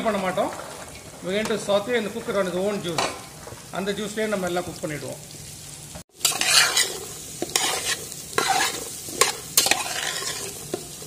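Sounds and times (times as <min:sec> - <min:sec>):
metal spatula scraping pot: 0:00.0 - 0:03.6, 0:06.2 - 0:11.0
vegetables sizzling in oil: 0:00.0 - 0:11.0.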